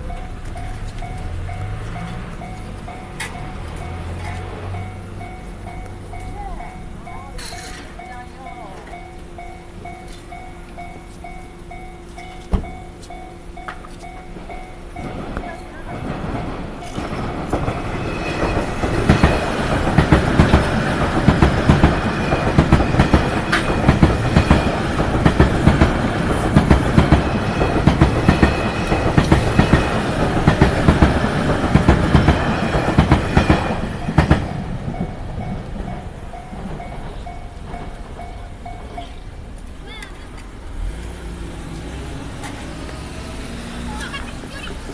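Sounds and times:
train wheels clacking over rail joints: 13.6s - 39.7s.

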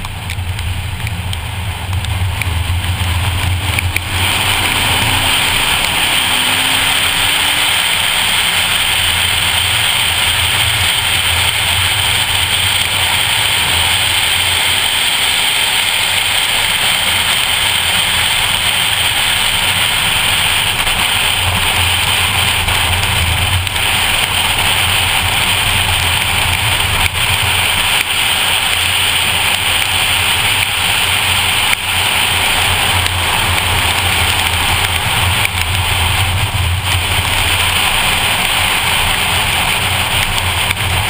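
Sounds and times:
car engine droning: 0.0s - 41.0s
heavy rain: 0.0s - 41.0s
wet road spray hissing: 0.0s - 41.0s.

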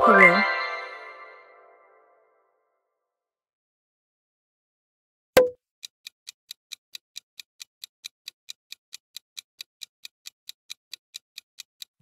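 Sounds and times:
clock ticking sound effect: 5.4s - 12.0s.

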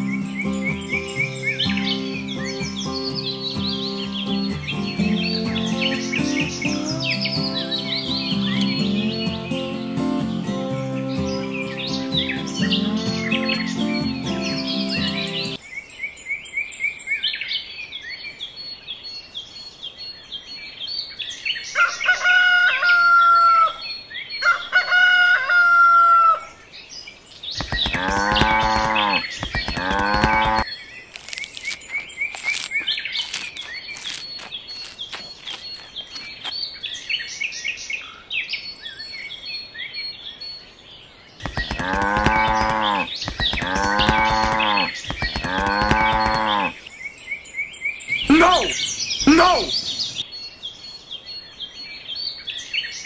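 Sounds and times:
small birds chirping: 0.0s - 22.2s, 26.6s - 53.0s
rooster crowing: 21.8s - 23.8s, 24.4s - 26.6s, 41.6s - 46.8s
livestock calling: 27.6s - 30.7s, 41.4s - 46.8s, 48.2s - 50.1s.

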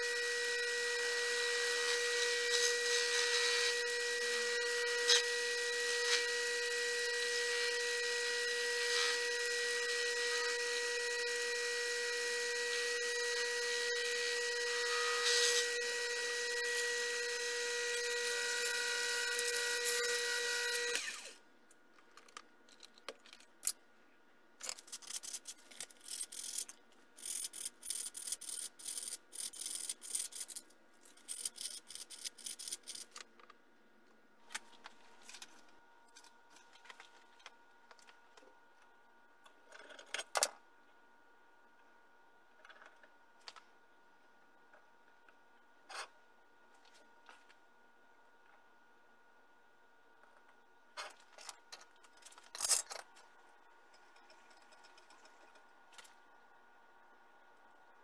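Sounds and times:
lathe motor whining: 0.0s - 21.4s.

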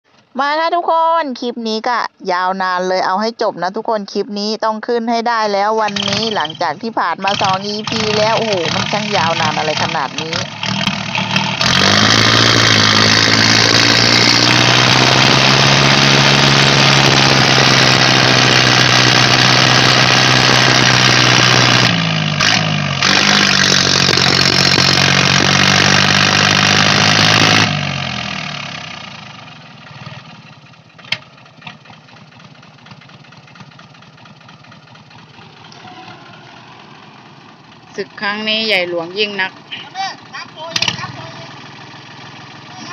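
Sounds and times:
diesel tractor engines straining: 0.0s - 42.9s.

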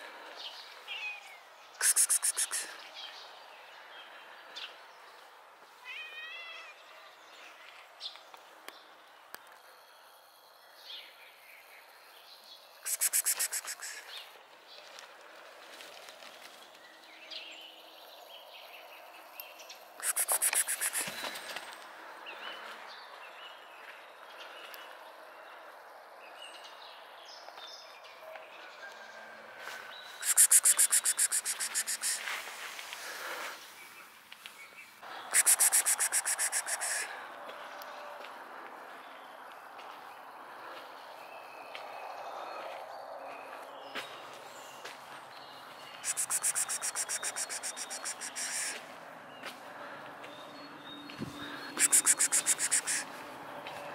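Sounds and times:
faint high chirps: 1.8s - 2.8s, 12.8s - 14.2s, 30.2s - 32.2s, 35.3s - 37.1s, 46.0s - 48.8s, 51.7s - 53.1s
cat meowing: 5.8s - 6.8s
sharp clicks: 20.0s - 21.2s, 30.2s - 32.2s
bird alarm rattle: 30.2s - 32.2s, 35.3s - 37.0s, 46.1s - 48.7s, 51.8s - 53.0s.

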